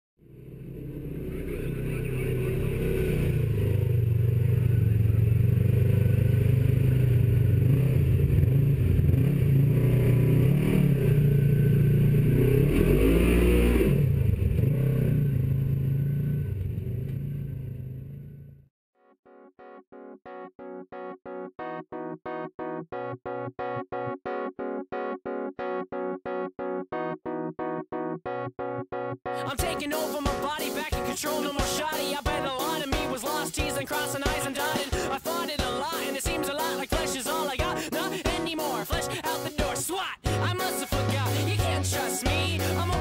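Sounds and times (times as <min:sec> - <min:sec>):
off-road vehicle engine running: 0:00.2 - 0:18.6.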